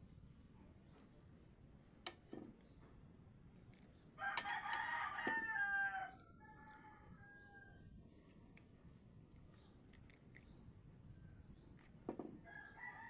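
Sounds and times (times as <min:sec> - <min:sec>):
rooster crowing: 0:04.2 - 0:07.8, 0:12.4 - 0:13.0.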